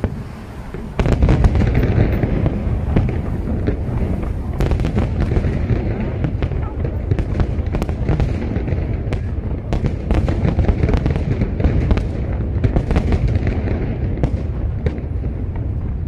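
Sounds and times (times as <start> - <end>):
low rumble of booms: 0.0 - 16.0.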